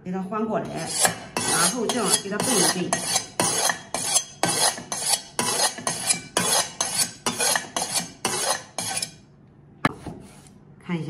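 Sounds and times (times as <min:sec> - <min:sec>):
cleaver scraping on ceramic: 0:00.6 - 0:09.2.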